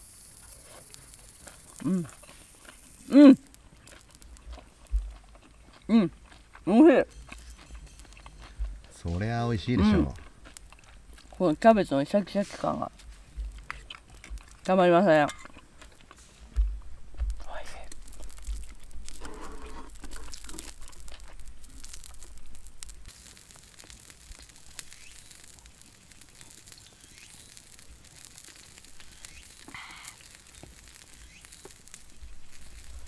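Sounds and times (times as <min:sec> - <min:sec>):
campfire crackling and popping: 0:00.0 - 0:33.0
mouth sound of eating: 0:00.4 - 0:11.4, 0:17.4 - 0:22.3, 0:23.7 - 0:33.0.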